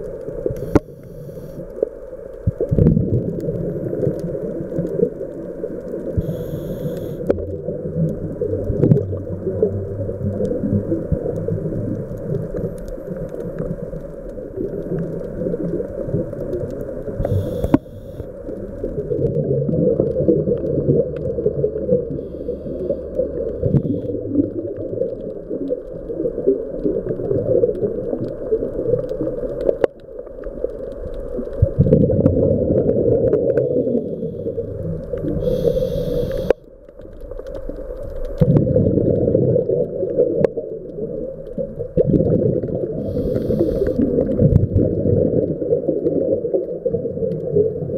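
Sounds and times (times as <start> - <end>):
regulator hiss: 0.6 - 1.7, 6.2 - 7.3, 17.2 - 18.5, 33.8 - 36.6, 43.0 - 44.2
bubbling underwater exhale: 2.5 - 5.2, 6.0 - 29.5, 31.3 - 36.6, 38.4 - 47.9.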